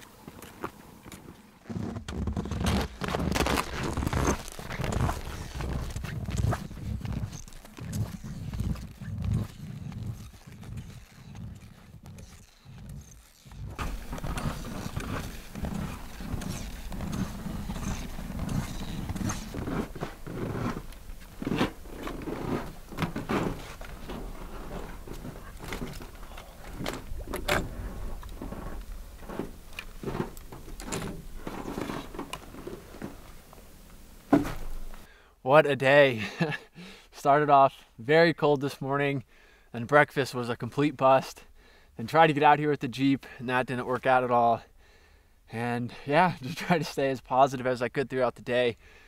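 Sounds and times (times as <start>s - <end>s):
footsteps on snowshoes over snow: 0.0s - 35.1s.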